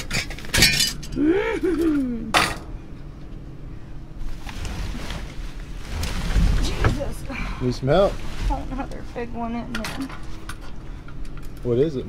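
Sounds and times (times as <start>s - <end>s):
person's wavering vocal sound: 1.2s - 2.4s
plastic trash bags crinkling: 4.2s - 9.4s.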